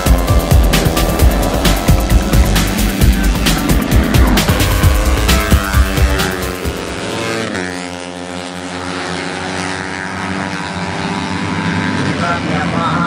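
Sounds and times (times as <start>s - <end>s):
racing motorcycles passing: 0.0s - 13.0s.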